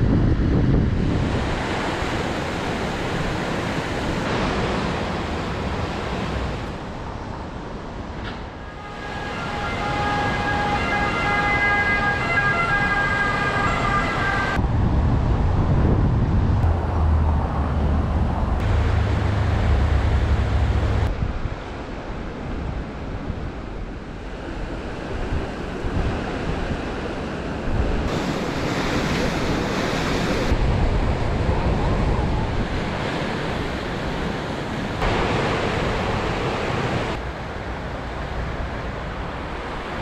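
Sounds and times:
wind buffeting microphone: 0.0 - 8.2, 14.3 - 40.0
river rushing: 1.0 - 14.6, 16.6 - 40.0
emergency vehicle siren: 8.8 - 14.6.

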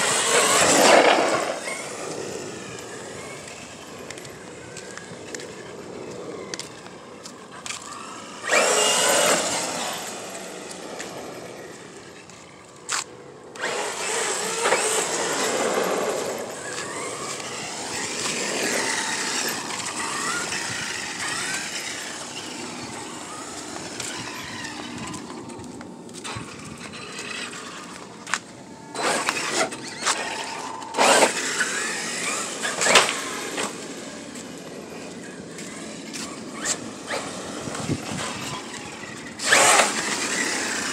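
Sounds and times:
electric motor whining: 0.0 - 40.9
tyres on pavement: 0.0 - 40.9.

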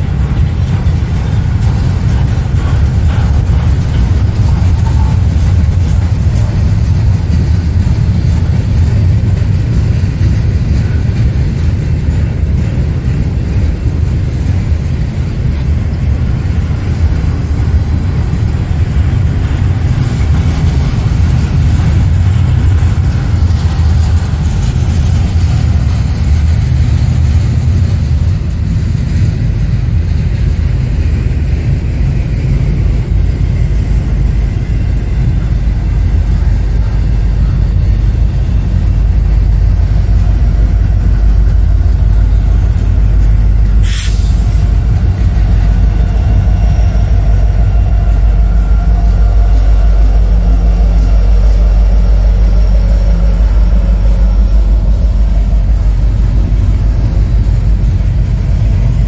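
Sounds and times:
diesel locomotive: 0.0 - 59.0
train wheels rumbling on rails: 0.0 - 59.0.

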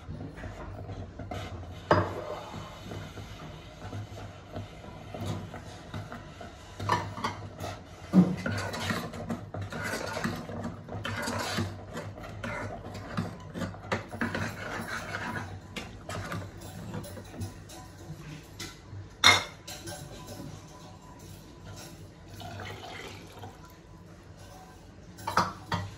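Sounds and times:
spoon scraping metal pot: 0.4 - 17.5.

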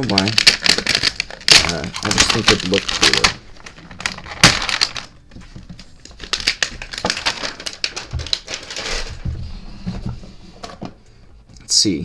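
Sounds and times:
packaging crinkling: 0.0 - 9.3.

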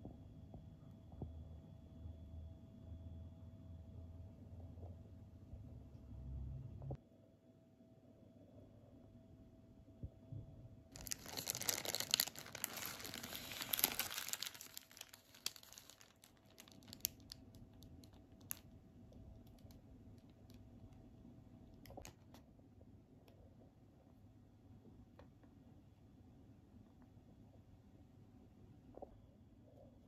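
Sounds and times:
paper wrapper crinkling: 10.9 - 18.8.

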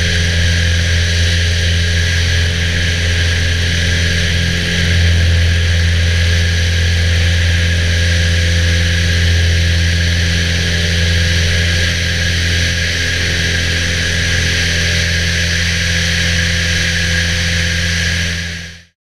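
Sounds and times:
light aircraft engine droning: 0.0 - 19.0.

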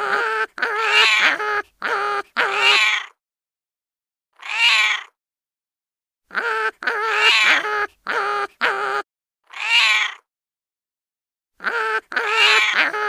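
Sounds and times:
cat-like meowing: 0.0 - 3.2, 4.4 - 5.1, 6.3 - 10.2.

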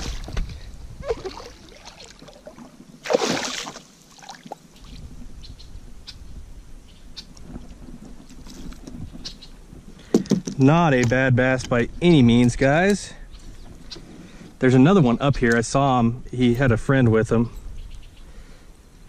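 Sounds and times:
fish splashing in water: 1.0 - 4.6.

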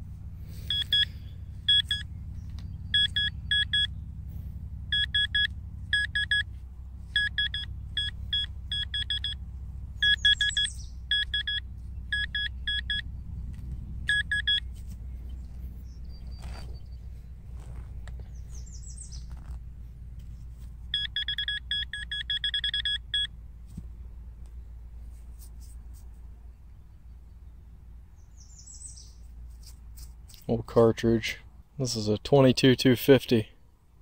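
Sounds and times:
steady low rumble: 0.0 - 34.0
metal detector probe beeping: 0.6 - 2.1, 2.9 - 3.9, 4.9 - 6.5, 7.1 - 9.4, 10.0 - 13.1, 14.1 - 14.8, 20.9 - 23.3.

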